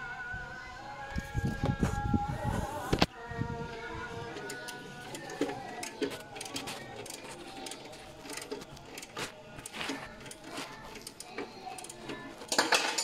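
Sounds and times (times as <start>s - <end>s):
metal clatter: 10.0s - 13.0s.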